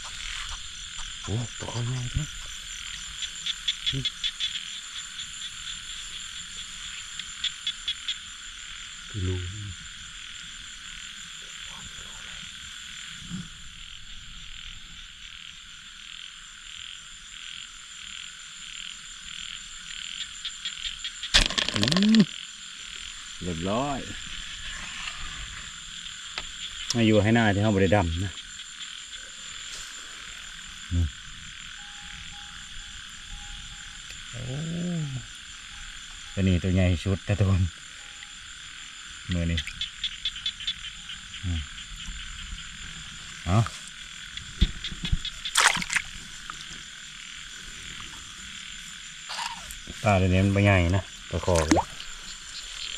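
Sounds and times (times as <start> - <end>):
frogs calling: 0.0 - 52.9
insect trilling: 0.0 - 52.9.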